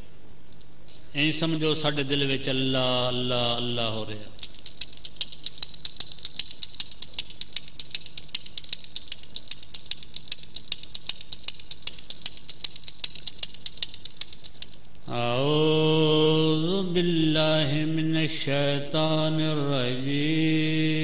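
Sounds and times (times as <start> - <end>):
prayer beads clicking: 3.8 - 15.2.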